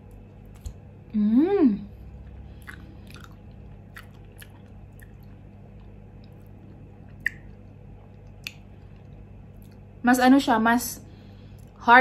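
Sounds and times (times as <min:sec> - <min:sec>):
person eating with mouth sounds: 0:00.6 - 0:07.6.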